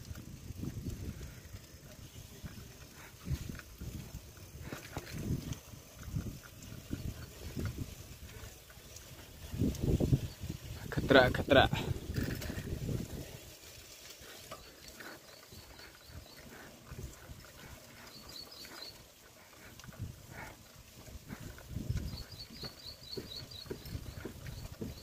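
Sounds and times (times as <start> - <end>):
walking thumps and rustling: 19.3 - 25.0.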